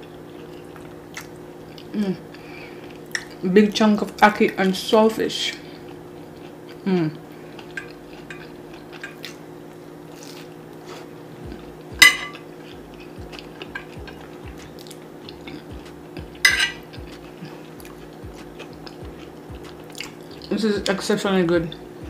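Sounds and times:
person chewing food: 0:00.0 - 0:03.4, 0:05.5 - 0:20.5
faint steady hum: 0:00.0 - 0:22.0
cutlery clinking on a plate: 0:12.0 - 0:12.4, 0:16.4 - 0:16.8.

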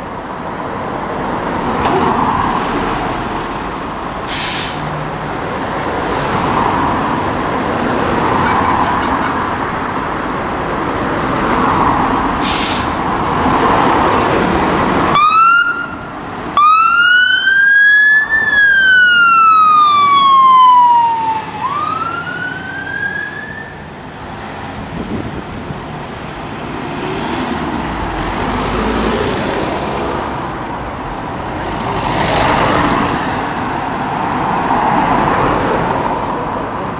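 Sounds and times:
fire engine diesel engine: 0:00.0 - 0:11.6, 0:12.2 - 0:34.3
road noise: 0:00.0 - 0:36.9
siren whoop and wail: 0:15.1 - 0:16.0, 0:16.6 - 0:23.8.

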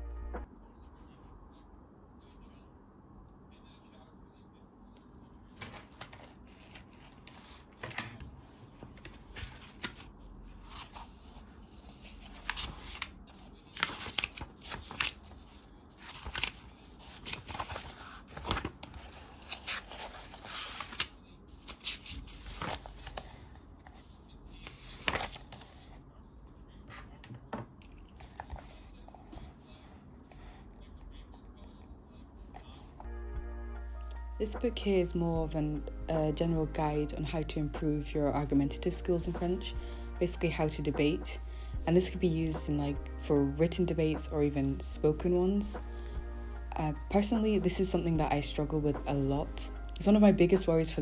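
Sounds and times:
book pages rustling: 0:05.6 - 0:26.0, 0:26.9 - 0:30.6.

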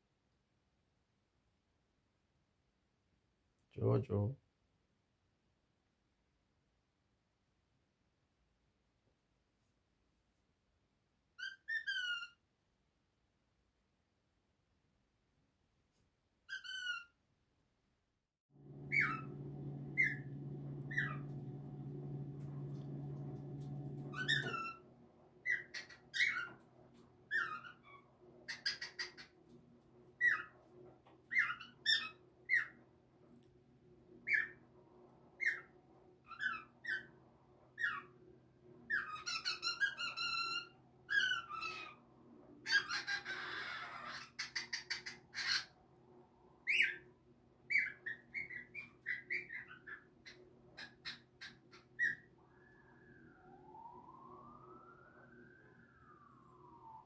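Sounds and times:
harsh cockatiel call: 0:11.4 - 0:12.4, 0:16.5 - 0:17.2, 0:18.8 - 0:21.5, 0:23.2 - 0:24.8, 0:25.4 - 0:26.6, 0:27.3 - 0:29.4, 0:30.2 - 0:30.6, 0:31.3 - 0:32.8, 0:34.3 - 0:34.6, 0:35.4 - 0:35.7, 0:36.3 - 0:37.1, 0:37.8 - 0:38.2, 0:38.9 - 0:45.8, 0:46.6 - 0:47.1, 0:47.7 - 0:52.4
low steady hum: 0:18.6 - 0:25.4
cockatiel chirping whistles: 0:18.9 - 0:21.4, 0:24.1 - 0:24.8, 0:46.7 - 0:47.0.

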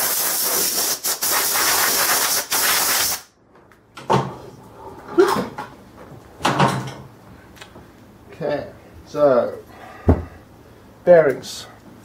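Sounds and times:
air blow gun hissing: 0:00.0 - 0:03.3.

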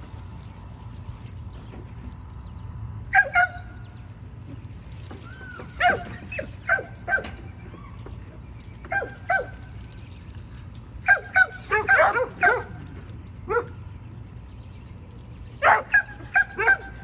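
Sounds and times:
dog yipping: 0:05.2 - 0:08.0, 0:08.8 - 0:09.7, 0:11.0 - 0:12.9, 0:15.6 - 0:17.0.

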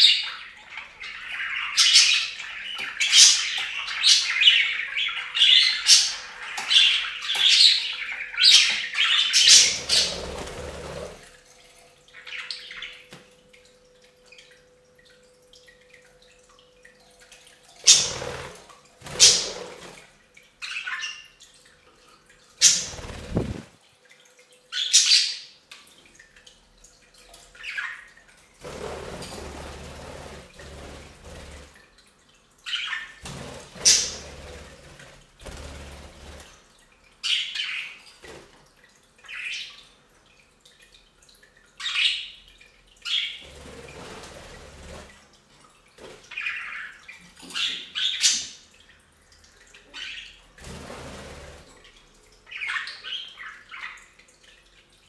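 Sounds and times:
budgies chirping and squawking: 0:00.0 - 0:11.1, 0:33.7 - 0:34.3, 0:52.5 - 0:54.0
water fountain trickling: 0:00.0 - 0:55.0.

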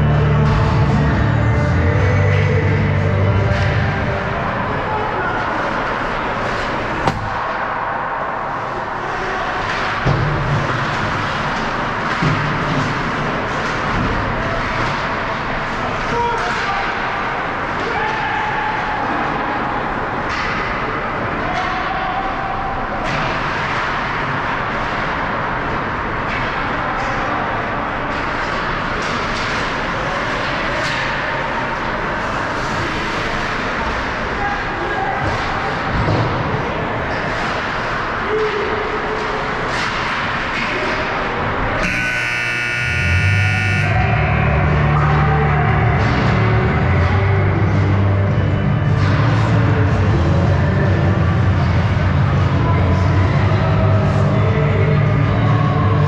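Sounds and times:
low bass-heavy music: 0:00.0 - 0:05.0, 0:42.1 - 0:56.0
ice rink crowd din: 0:00.0 - 0:56.0
scoreboard buzzer: 0:41.8 - 0:44.0
sudden sharp sounds: 0:41.8 - 0:44.4.

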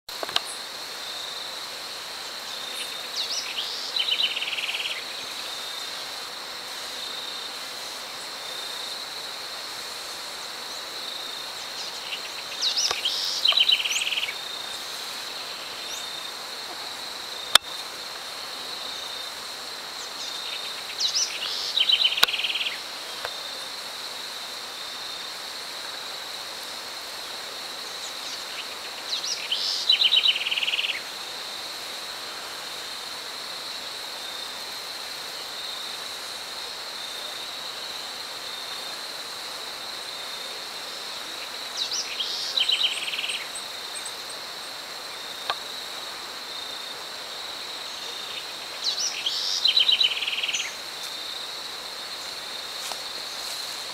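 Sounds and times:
bird song: 0:11.6 - 0:14.4, 0:20.0 - 0:22.8, 0:27.9 - 0:31.0, 0:41.8 - 0:44.3, 0:47.9 - 0:50.8.

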